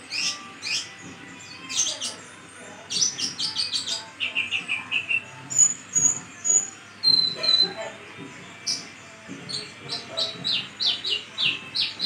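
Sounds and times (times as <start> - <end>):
sunbird singing: 0.0 - 2.2, 9.5 - 12.0.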